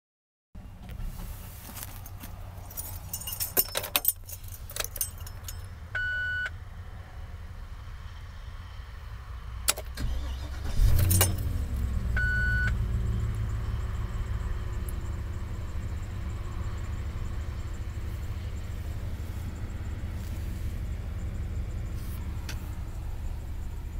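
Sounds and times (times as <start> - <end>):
keys jangling: 2.6 - 5.7, 10.9 - 11.5
engine idling: 10.0 - 23.9.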